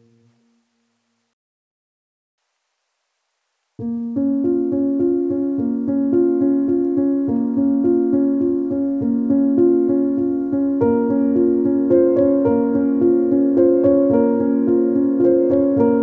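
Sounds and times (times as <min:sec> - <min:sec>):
repeating keyboard music: 0:03.8 - 0:16.0.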